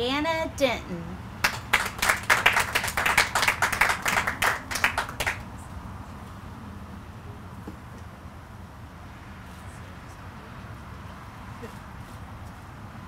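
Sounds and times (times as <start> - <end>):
small audience clapping: 1.4 - 5.6.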